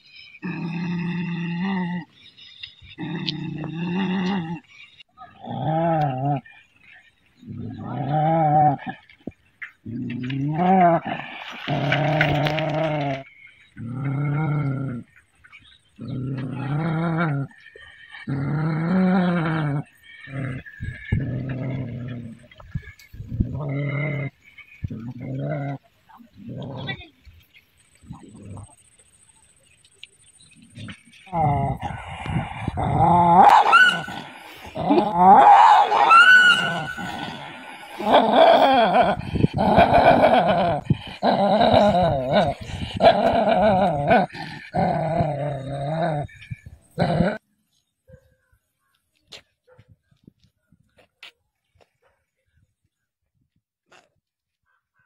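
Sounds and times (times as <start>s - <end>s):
dog growling: 2.9s - 4.7s, 16.0s - 22.7s, 30.8s - 47.4s.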